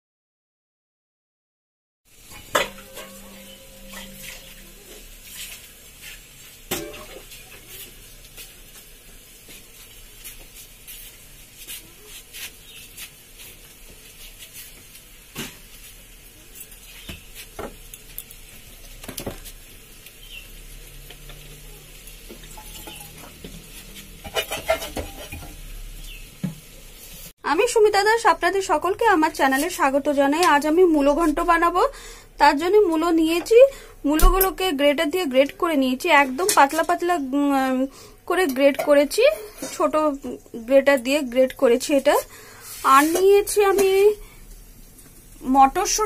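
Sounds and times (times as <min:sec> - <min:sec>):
radish frying with faint sizzle: 0:02.1 - 0:46.0
clatter of utensils: 0:02.3 - 0:05.6, 0:06.7 - 0:07.9, 0:22.3 - 0:25.7
metal spatula clinking and scraping: 0:02.3 - 0:05.6, 0:22.4 - 0:25.6.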